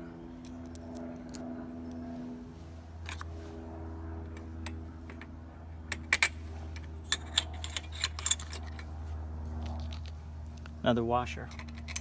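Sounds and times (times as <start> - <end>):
steady low hum: 0.0 - 12.0
metal hardware clicking and clinking: 7.1 - 8.9, 9.6 - 10.7, 11.4 - 12.0.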